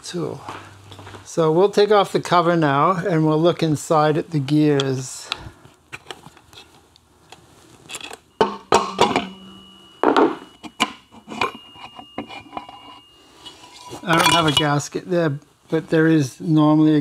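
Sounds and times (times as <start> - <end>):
metal tools clinking on metal: 7.9 - 14.9.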